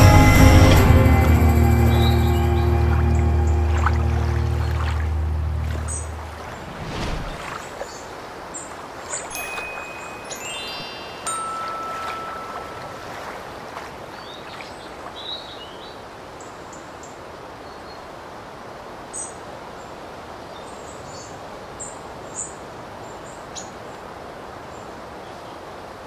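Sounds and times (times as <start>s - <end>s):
small birds chirping: 1.9s - 11.4s, 14.1s - 16.5s
steady rushing noise: 3.0s - 7.7s.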